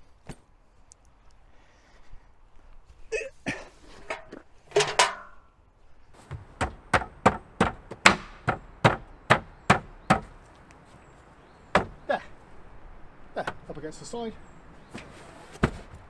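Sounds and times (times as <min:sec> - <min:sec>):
sharp knocks on wood: 0:06.3 - 0:10.4, 0:11.7 - 0:12.0, 0:15.6 - 0:16.0.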